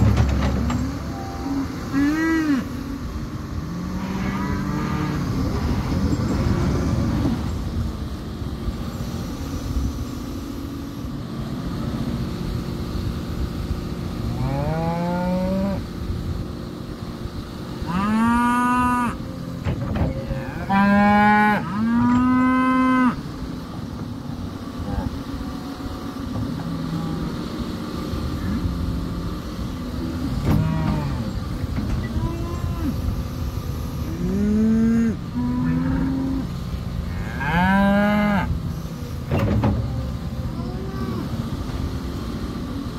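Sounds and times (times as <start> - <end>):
excavator engine under load: 0.0 - 42.9
excavator arm groaning: 28.2 - 42.0.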